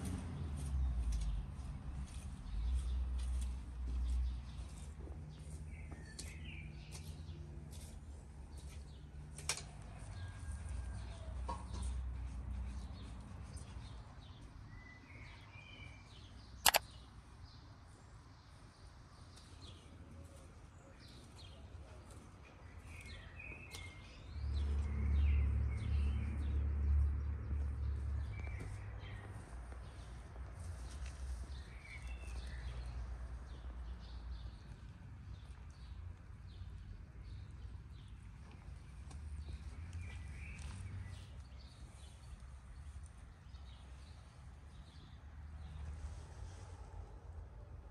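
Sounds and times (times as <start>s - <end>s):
sharp click: 16.6s - 16.9s.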